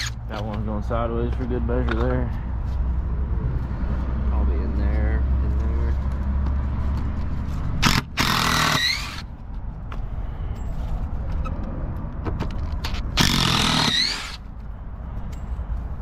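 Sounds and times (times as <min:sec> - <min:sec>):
impact driver hammering: 0:07.8 - 0:09.2, 0:13.2 - 0:14.4.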